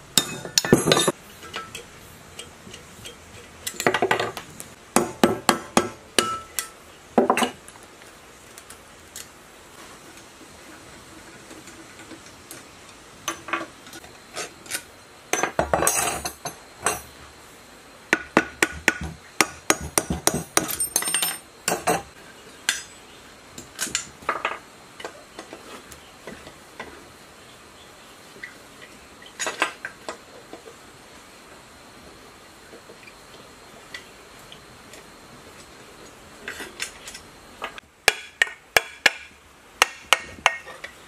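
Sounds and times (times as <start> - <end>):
metal tools clinking on workbench: 0.2 - 4.4, 14.7 - 17.1, 20.0 - 22.1.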